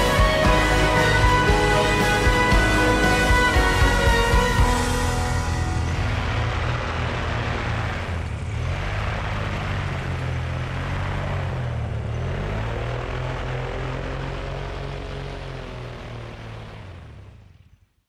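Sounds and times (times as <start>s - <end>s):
propeller wash rushing: 0.0s - 11.9s
paramotor engine running: 0.0s - 18.0s.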